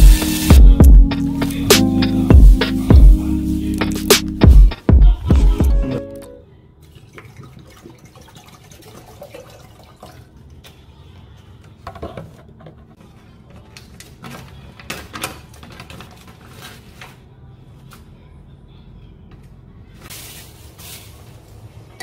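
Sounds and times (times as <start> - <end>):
water pouring into pot: 7.0 - 10.5.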